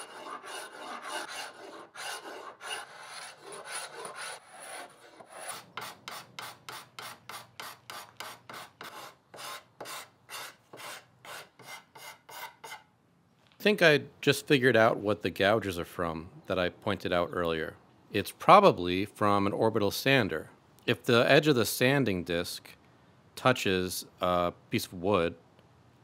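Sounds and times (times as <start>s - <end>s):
hand scraper rasping on wood: 0.0s - 12.8s.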